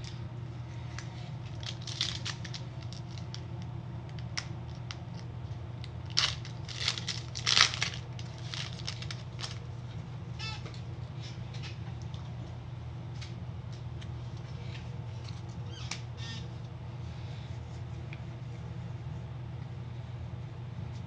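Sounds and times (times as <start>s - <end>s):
steady low hum: 0.0s - 21.0s
foil wrapper crinkling and tearing: 1.4s - 3.5s, 5.8s - 9.7s.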